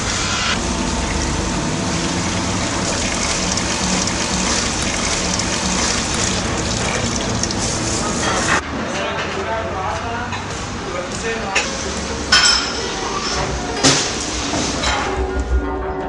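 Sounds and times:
water gushing into plastic bag: 0.6s - 8.6s.

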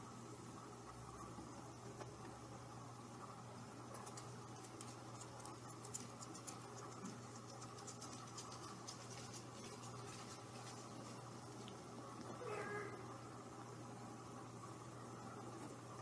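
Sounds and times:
low steady hum: 0.0s - 16.0s
kitten paws scratching and ticking: 3.9s - 11.8s.

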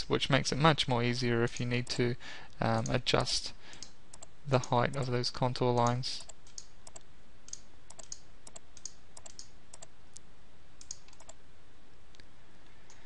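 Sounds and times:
faint steady hiss: 0.0s - 13.0s
mouse and keyboard clicking: 5.8s - 9.9s, 10.8s - 11.4s.

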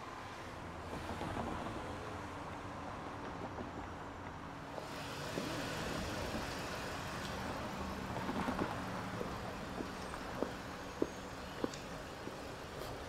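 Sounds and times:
traffic rumble: 0.0s - 13.0s
footsteps on pavement: 7.2s - 13.0s.

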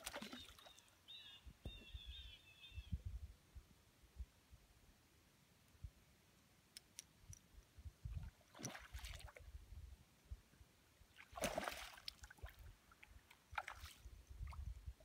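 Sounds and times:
fish splashing at water surface: 11.3s - 12.5s.

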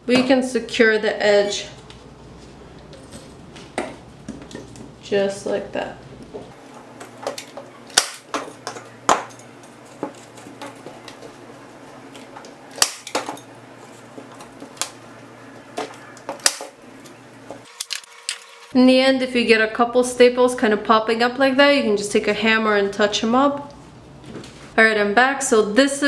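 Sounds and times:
staple gun snapping: 7.9s - 8.3s, 16.4s - 16.7s.

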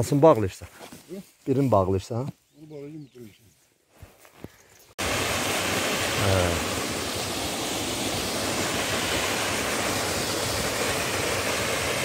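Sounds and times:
waterfall rushing: 5.0s - 12.0s.

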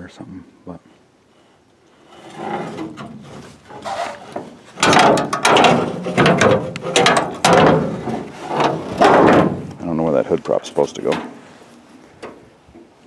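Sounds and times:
loose metal rattling and clanking: 2.2s - 9.8s.

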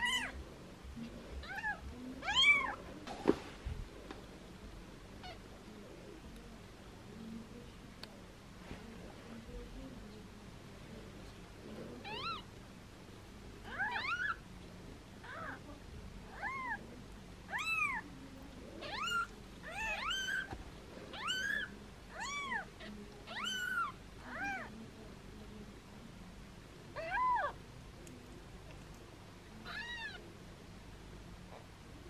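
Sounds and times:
kitten meowing: 18.8s - 20.5s.

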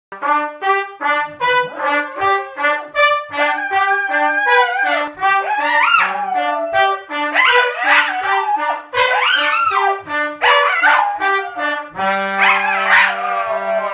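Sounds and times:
trumpet playing short notes: 0.1s - 13.9s
dog howling: 3.4s - 9.8s, 10.4s - 11.8s, 12.4s - 13.9s.

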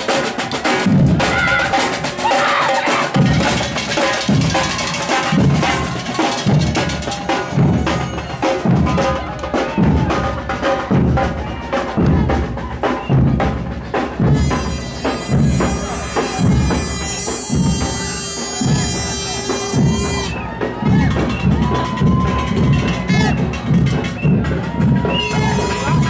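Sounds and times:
snare drums: 0.0s - 26.0s
bass drums thumping: 10.9s - 26.0s
high reedy tone with drone: 14.3s - 20.6s.

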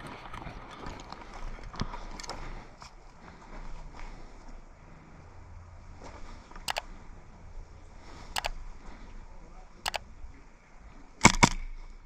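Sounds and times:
airsoft gun shots: 11.2s - 11.6s.

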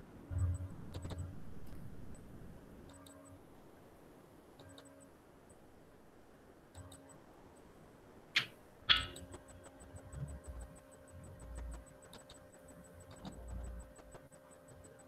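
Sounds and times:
low hum: 0.0s - 15.0s
sharp clicks: 0.9s - 2.2s, 4.6s - 5.6s, 6.7s - 7.7s, 8.4s - 15.0s
fast regular ticking: 8.4s - 15.0s.

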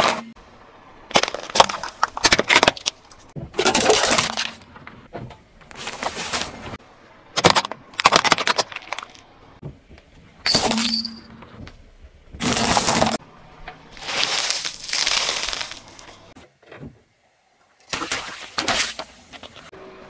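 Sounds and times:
plastic cracking under tyre: 1.1s - 4.7s, 7.3s - 9.3s, 14.0s - 16.2s
tyre crunching objects: 1.1s - 4.8s, 12.3s - 13.2s, 13.9s - 16.4s.

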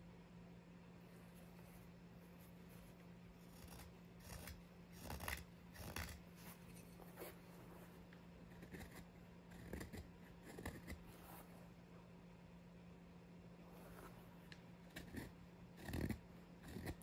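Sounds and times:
knife shaving wood: 2.4s - 7.5s, 8.4s - 11.5s, 14.0s - 17.0s.

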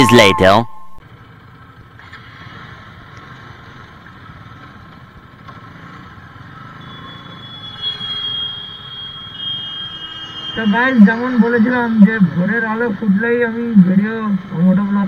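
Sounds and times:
thin high tone: 0.0s - 1.0s, 6.7s - 12.9s
motorcycle engine running: 1.0s - 7.6s
wind and road noise: 1.0s - 15.0s.

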